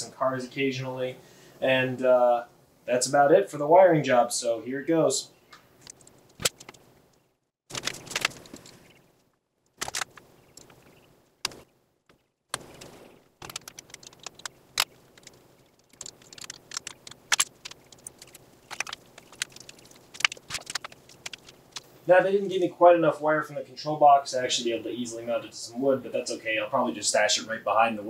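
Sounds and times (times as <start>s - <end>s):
metal battery terminals clinking: 7.7s - 8.9s.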